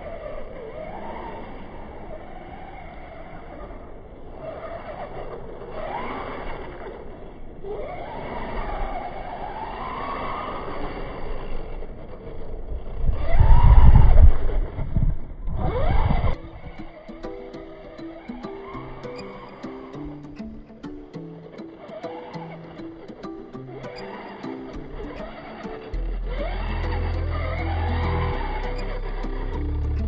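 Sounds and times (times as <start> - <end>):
electric motor whining: 15.6 - 30.0
music: 16.4 - 30.0.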